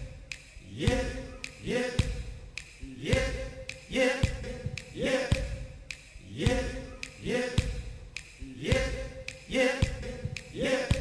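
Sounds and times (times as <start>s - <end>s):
man singing amplified yep: 0.8s - 2.2s, 2.8s - 5.6s, 6.4s - 7.8s, 8.5s - 11.0s.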